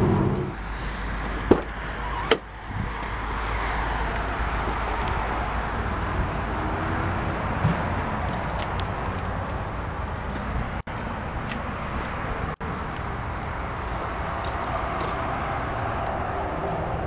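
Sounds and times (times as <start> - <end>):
outdoor low rumble: 0.0 - 10.1.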